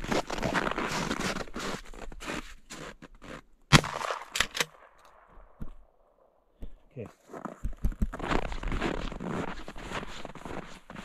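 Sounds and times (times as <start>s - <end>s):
rifle shot with echo: 3.7s - 5.6s.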